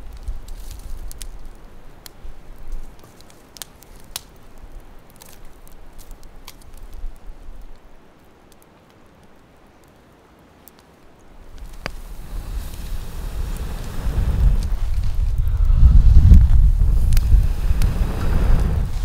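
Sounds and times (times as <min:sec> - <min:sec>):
logs laid on fire: 0:00.0 - 0:10.0, 0:10.6 - 0:19.0
campfire crackling with pops: 0:00.0 - 0:19.0
low rumble: 0:12.2 - 0:19.0.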